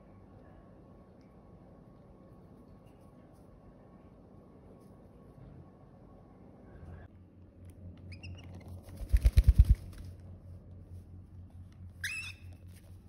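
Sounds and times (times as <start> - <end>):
cockatiel chirping: 12.0 - 12.6.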